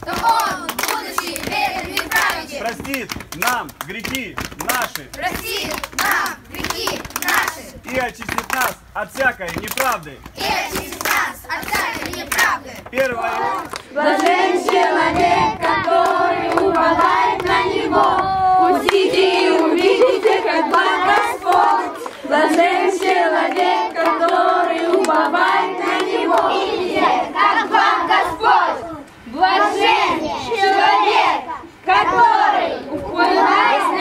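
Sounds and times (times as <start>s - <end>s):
children chanting: 0.0s - 2.6s, 5.2s - 7.8s, 10.4s - 34.0s
hand clapping: 0.0s - 14.9s.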